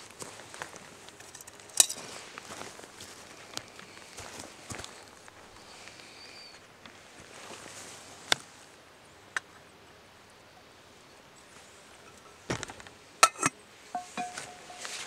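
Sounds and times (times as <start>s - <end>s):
metallic ring: 11.9s - 12.5s, 13.2s - 15.0s
metal lid clanking on pot: 13.2s - 15.0s.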